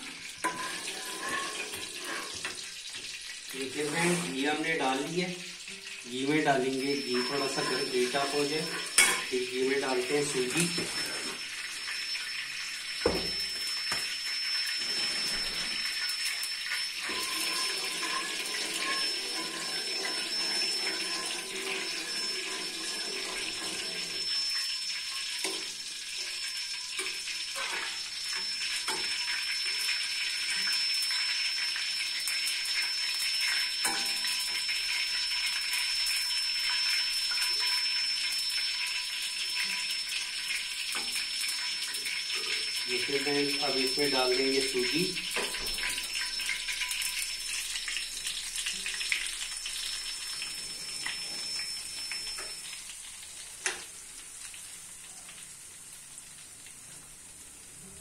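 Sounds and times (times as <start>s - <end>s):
ghee sizzling in a pan: 0.0s - 58.0s
steel ladle clinking in pan: 8.8s - 9.3s.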